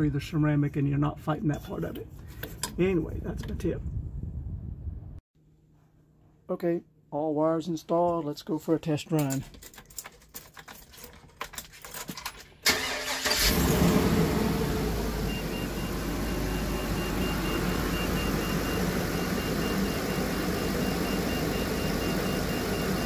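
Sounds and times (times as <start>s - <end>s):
engine starter cranking: 12.6s - 14.9s
engine idling: 12.7s - 23.0s.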